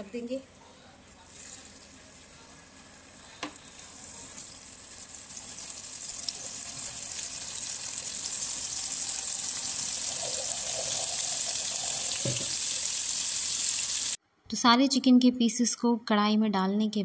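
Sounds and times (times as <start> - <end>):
chicken sizzling in hot oil: 1.3 - 14.2.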